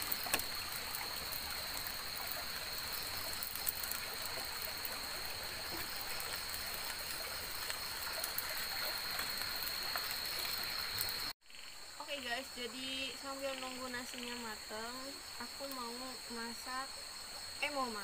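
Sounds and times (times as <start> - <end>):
small crackles: 0.0 - 11.3
high insect drone: 0.0 - 18.0.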